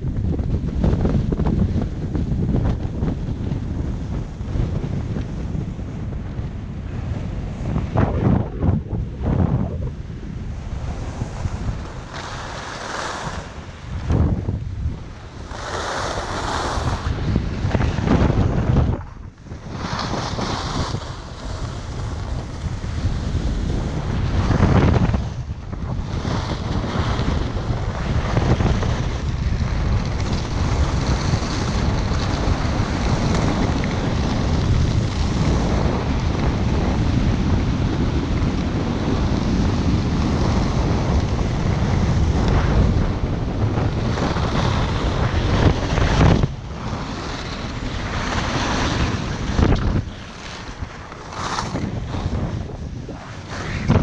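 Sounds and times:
wind rushing over microphone: 0:00.0 - 0:54.0
skis sliding on snow: 0:10.6 - 0:14.3, 0:15.1 - 0:25.4, 0:26.0 - 0:54.0.

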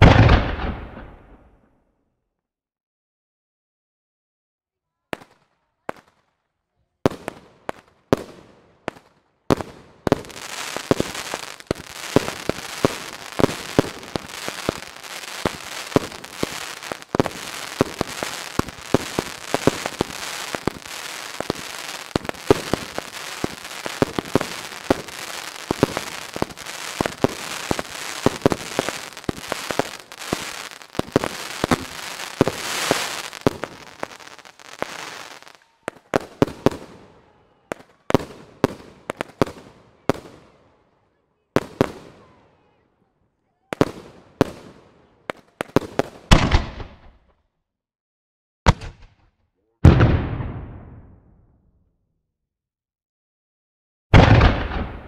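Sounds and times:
fireworks banging: 0:00.0 - 0:01.5, 0:08.1 - 0:37.0, 0:54.2 - 0:55.0
fireworks crackling: 0:07.1 - 0:40.5.

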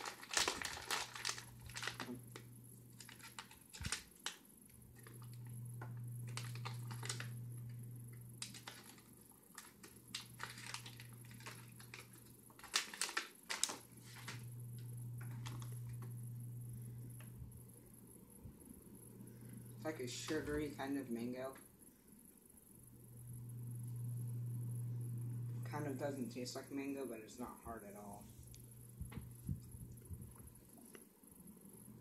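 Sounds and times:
plastic packet crinkling: 0:00.0 - 0:05.5, 0:06.2 - 0:07.4, 0:08.4 - 0:14.5, 0:15.2 - 0:16.0
low hum: 0:04.7 - 0:08.8, 0:14.0 - 0:20.8, 0:22.5 - 0:26.3, 0:28.1 - 0:30.6.

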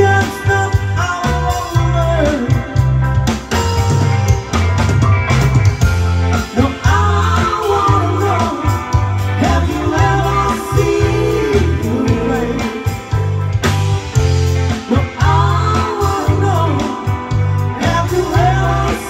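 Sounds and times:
bass guitar: 0:00.0 - 0:19.0
drums: 0:00.0 - 0:19.0
electric guitar: 0:00.0 - 0:19.0
keyboard: 0:00.0 - 0:19.0
women singing lead: 0:06.5 - 0:13.2, 0:14.8 - 0:19.0.

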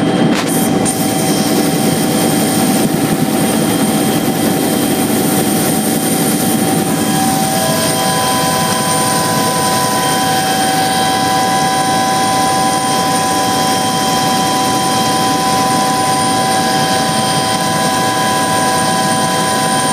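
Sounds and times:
helicopter engine and rotor drone: 0:00.0 - 0:19.9
high whining tones: 0:04.2 - 0:19.9.

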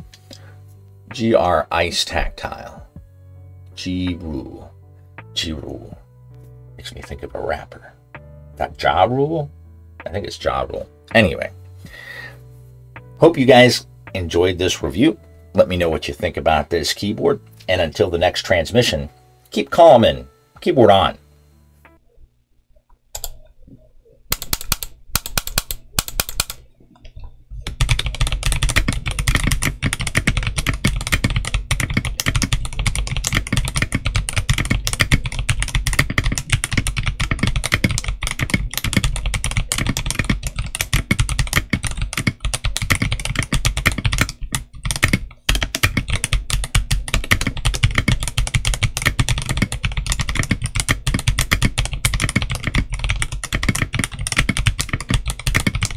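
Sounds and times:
typing on mechanical keyboard: 0:24.3 - 0:26.6, 0:27.7 - 0:55.9.

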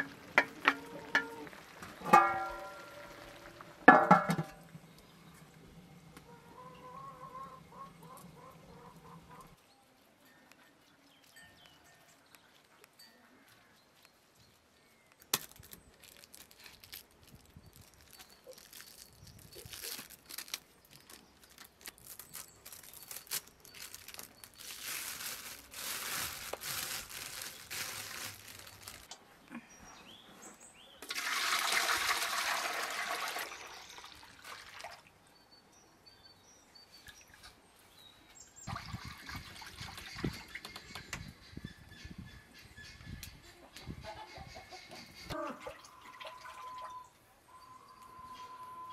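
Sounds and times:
plastic and rope rustling: 0:13.9 - 0:29.2
buttermilk gushing into metal pot: 0:31.0 - 0:34.9.

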